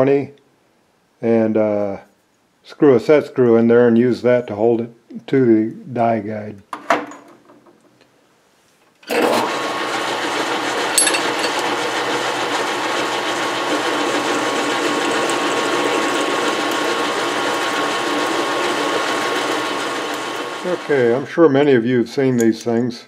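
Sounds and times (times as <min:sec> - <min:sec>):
drill boring into metal: 0:09.1 - 0:21.2
metal lathe running: 0:09.1 - 0:21.3.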